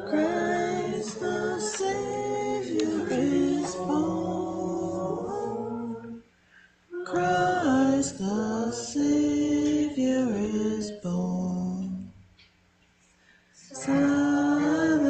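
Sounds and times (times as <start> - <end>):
hymn singing: 0.0 - 12.2, 13.6 - 15.0.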